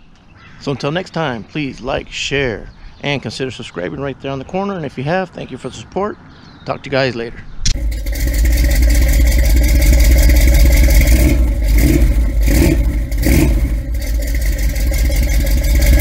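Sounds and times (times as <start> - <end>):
car engine running and revving: 7.7 - 16.0.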